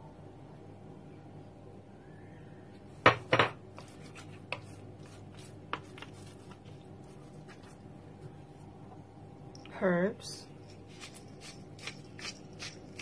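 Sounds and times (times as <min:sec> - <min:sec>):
hands rubbing meat: 0:10.8 - 0:13.0.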